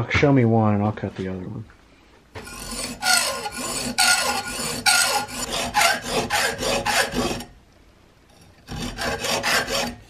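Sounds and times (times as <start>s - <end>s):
hacksaw sawing through steel: 2.4s - 7.5s, 8.6s - 10.0s.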